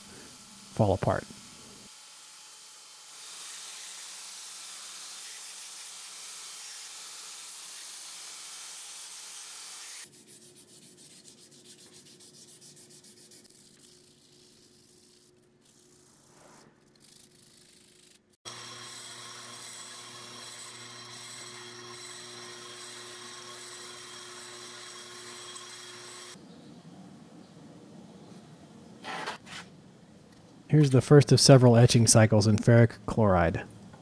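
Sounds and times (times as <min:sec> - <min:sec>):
sandpaper rubbing by hand: 0:09.7 - 0:18.4
bench buffer motor hum: 0:18.4 - 0:26.4.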